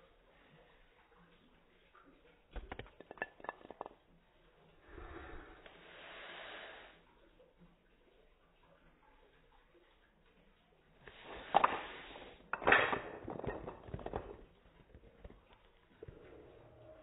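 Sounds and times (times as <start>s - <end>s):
wooden blocks clattering down: 2.5s - 4.1s, 11.1s - 16.1s.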